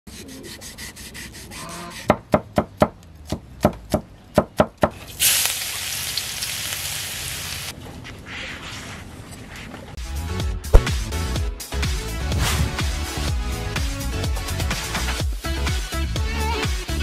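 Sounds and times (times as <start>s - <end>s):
cleaver chopping on wooden block: 2.0s - 4.9s
garlic sizzling in hot oil: 5.1s - 7.7s.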